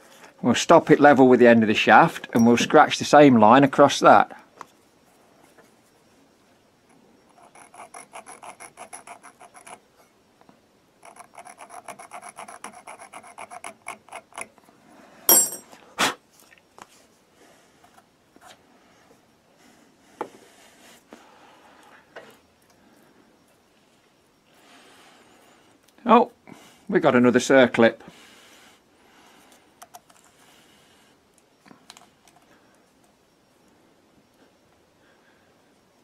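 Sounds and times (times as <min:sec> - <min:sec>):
scriber rasping on metal: 0:07.3 - 0:09.8, 0:11.0 - 0:14.5.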